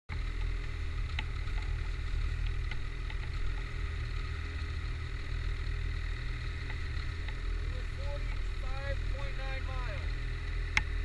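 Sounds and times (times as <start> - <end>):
snowmobile engines idling: 0.1 - 11.0.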